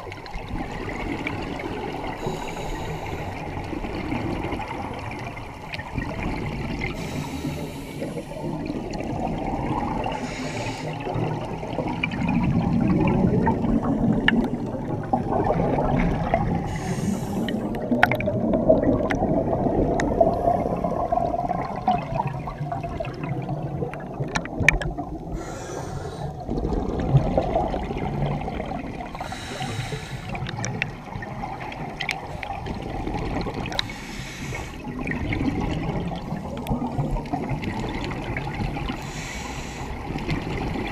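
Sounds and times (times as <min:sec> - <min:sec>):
scuba regulator bubbling underwater: 0:00.0 - 0:40.9
regulator hiss: 0:02.2 - 0:03.4, 0:10.2 - 0:11.0, 0:16.7 - 0:17.7, 0:25.4 - 0:26.3, 0:29.2 - 0:30.4, 0:33.8 - 0:34.8, 0:39.0 - 0:40.0.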